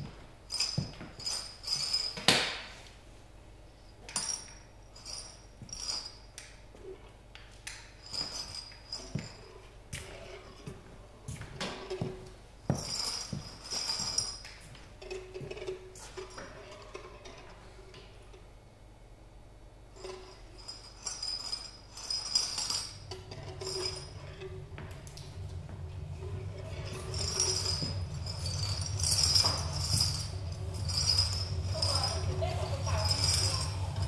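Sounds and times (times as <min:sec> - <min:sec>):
faint low hum: 0:00.0 - 0:34.0
small hard objects clinking: 0:26.5 - 0:34.0.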